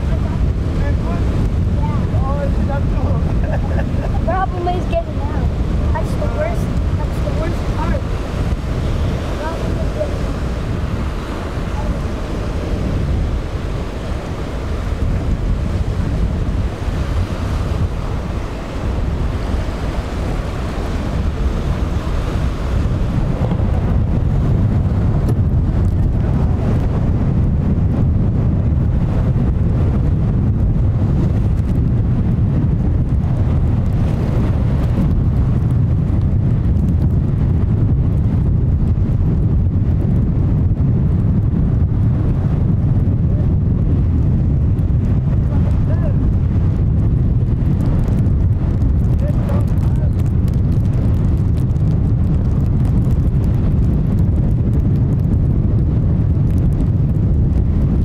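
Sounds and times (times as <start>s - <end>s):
outboard engines running: 0.0s - 27.0s
breaking surf: 0.0s - 40.6s, 41.2s - 58.0s
wind buffeting microphone: 0.0s - 58.0s.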